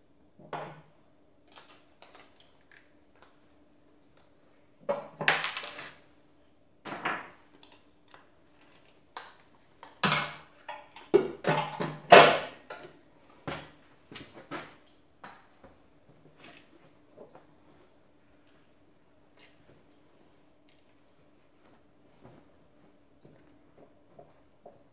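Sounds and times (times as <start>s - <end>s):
metal parts clinking: 5.3s - 5.9s.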